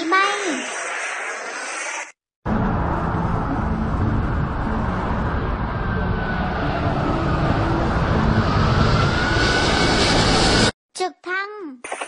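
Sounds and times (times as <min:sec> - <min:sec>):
jet engines rumble and hiss: 0:00.0 - 0:02.2
thin jet engine whine: 0:00.0 - 0:10.8.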